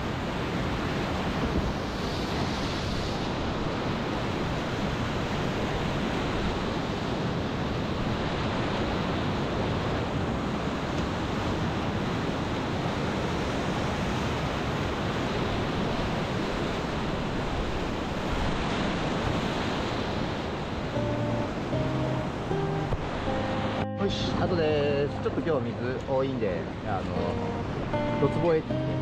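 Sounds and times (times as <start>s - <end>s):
whitewater rushing: 0.0s - 29.0s.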